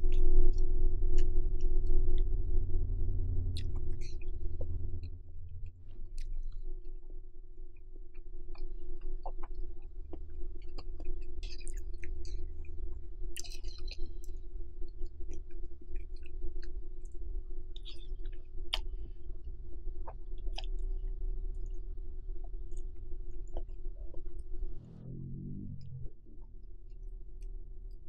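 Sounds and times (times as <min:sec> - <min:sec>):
wet chewing and mouth sounds: 0:08.1 - 0:14.4, 0:17.8 - 0:19.3, 0:20.0 - 0:24.4.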